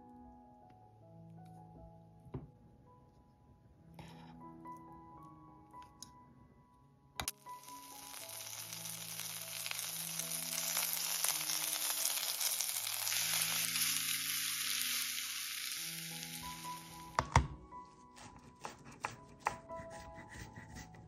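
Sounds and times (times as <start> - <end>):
food sizzling in hot oil: 7.3 - 17.4.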